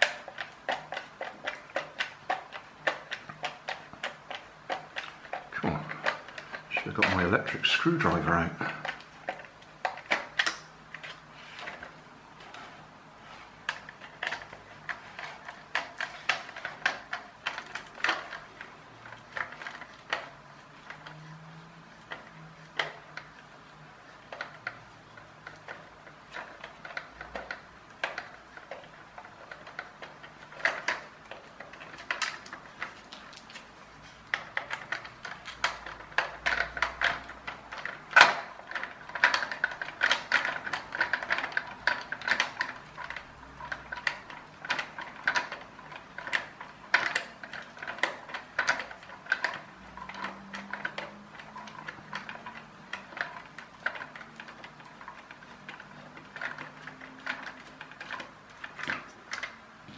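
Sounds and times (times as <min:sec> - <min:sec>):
sharp clicks and ticks: 0:00.0 - 0:12.6, 0:24.1 - 0:59.9.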